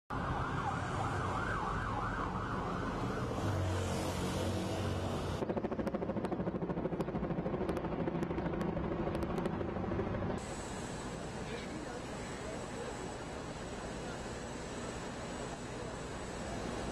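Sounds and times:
emergency vehicle siren wailing: 0.1 - 5.4
street traffic: 0.1 - 5.7, 7.6 - 16.9
helicopter rotor beating: 0.2 - 16.9.

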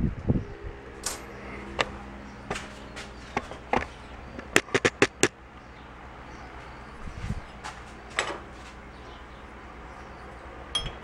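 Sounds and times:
rapid sharp clicks: 3.3 - 5.3
tools clicking and tapping: 3.3 - 5.3.

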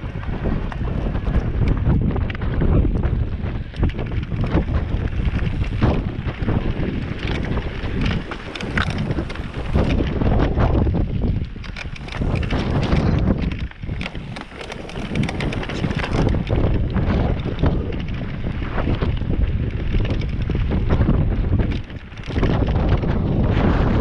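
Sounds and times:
bike rattling and clicking: 0.0 - 24.0
wind buffeting microphone: 0.0 - 24.0
tyres crunching over stones: 4.4 - 10.3, 11.5 - 17.9.

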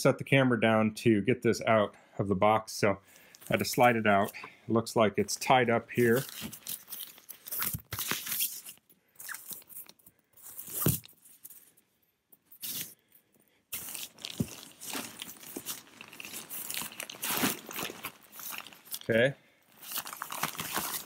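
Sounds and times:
tent fabric rustling: 13.7 - 21.0.

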